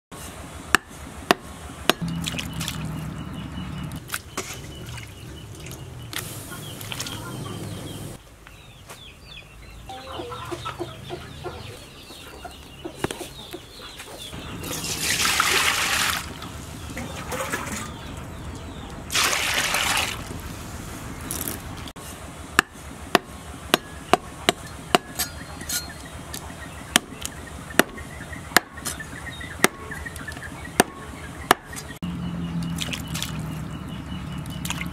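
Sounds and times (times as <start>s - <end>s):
cleaver chopping on wooden board: 0.7s - 2.1s, 22.6s - 25.9s, 26.9s - 28.0s, 29.6s - 30.0s, 30.8s - 31.9s
chickens clucking: 2.0s - 8.2s, 8.8s - 15.3s, 16.2s - 19.1s, 23.2s - 32.6s.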